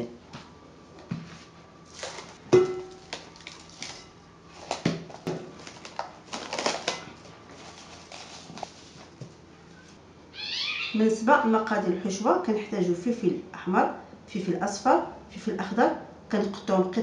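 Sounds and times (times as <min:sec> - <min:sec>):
cling film crinkling: 0:01.8 - 0:02.4, 0:03.0 - 0:09.2
cling film tearing: 0:05.7 - 0:07.0.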